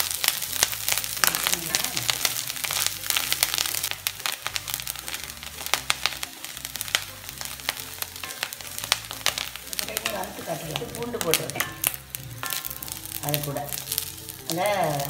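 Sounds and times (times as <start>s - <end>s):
coconut sizzling in oil: 0.0s - 15.0s
spatula scraping and tapping pan: 0.5s - 15.0s.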